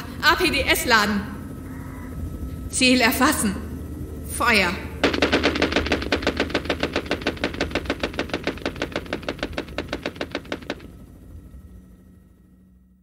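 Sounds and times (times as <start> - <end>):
low hum: 0.0 - 13.0
automatic gunfire burst: 5.0 - 10.9.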